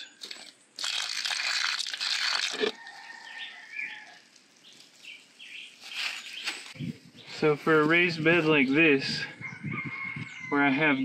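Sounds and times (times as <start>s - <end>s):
liquid splashing through leaves: 0.2s - 6.7s.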